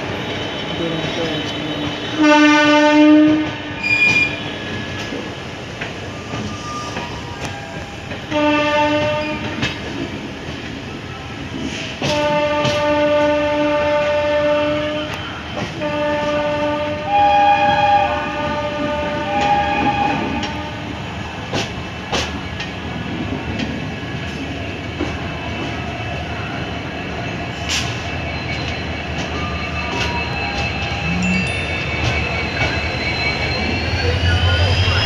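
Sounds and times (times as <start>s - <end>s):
train rumbling: 0.0s - 35.0s
higher-pitched train horn: 0.7s - 4.6s, 8.3s - 9.7s, 12.0s - 21.1s
locomotive horn blasts: 2.2s - 4.4s, 8.3s - 9.6s, 12.0s - 15.2s, 15.8s - 20.9s.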